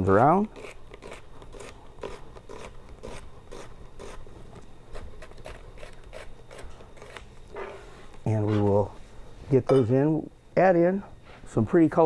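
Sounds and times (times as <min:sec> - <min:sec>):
knife slicing onion: 0:00.0 - 0:04.3, 0:04.9 - 0:07.6.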